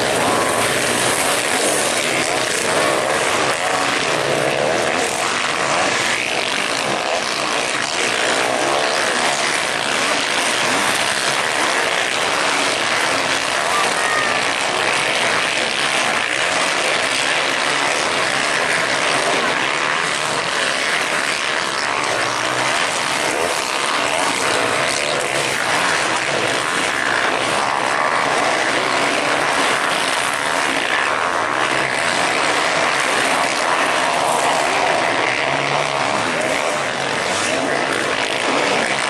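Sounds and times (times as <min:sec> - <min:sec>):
motocross bike engines buzzing: 0:00.0 - 0:39.0.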